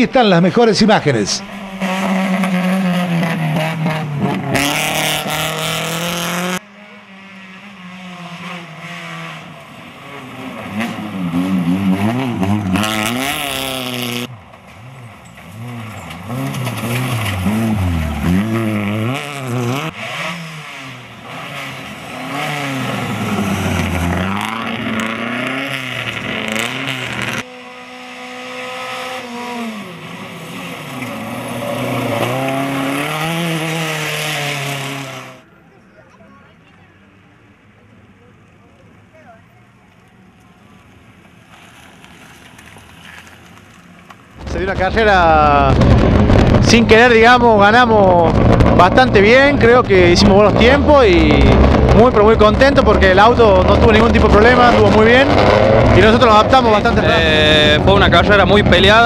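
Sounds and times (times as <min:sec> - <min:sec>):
rally car engines revving: 0:00.0 - 0:35.5, 0:40.8 - 0:59.0.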